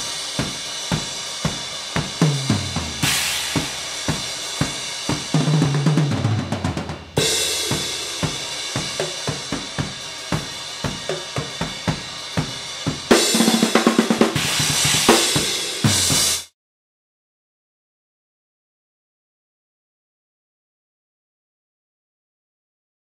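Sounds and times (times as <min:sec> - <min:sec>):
cymbal crashes: 0:00.0 - 0:16.5
drum kit fills: 0:00.0 - 0:16.5.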